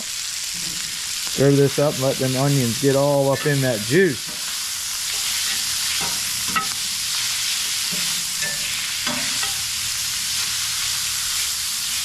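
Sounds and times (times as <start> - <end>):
sausage and onions sizzling: 0.0 - 12.0
metal spatula scraping: 3.3 - 9.8.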